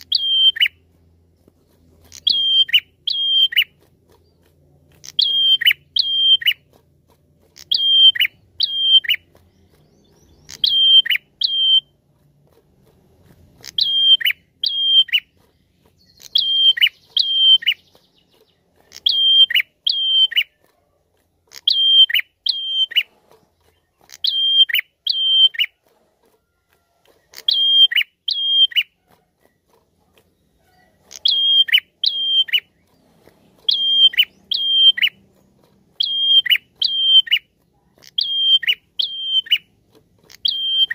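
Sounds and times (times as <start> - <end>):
bird whistling calls: 0.0 - 0.8, 2.1 - 3.8, 5.0 - 6.6, 7.6 - 11.9, 13.6 - 15.4, 16.0 - 20.6, 21.6 - 23.1, 24.1 - 25.8, 27.4 - 28.9, 30.7 - 32.9, 33.6 - 35.2, 35.9 - 39.7, 40.3 - 40.9.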